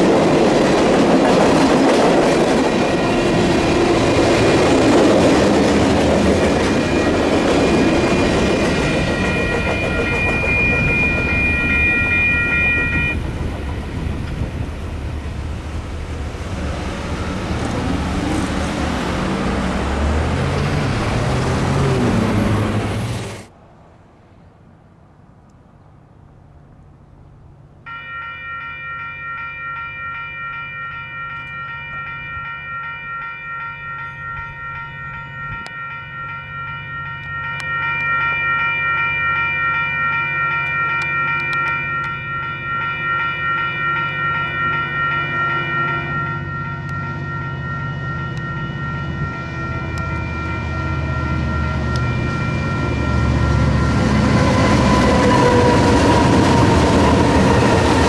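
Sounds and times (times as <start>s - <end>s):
crossing warning bell ringing: 0.0s - 22.9s, 27.8s - 58.0s
train wheels rolling: 0.0s - 23.5s, 49.4s - 58.0s
train rumbling: 0.0s - 24.5s, 30.4s - 58.0s.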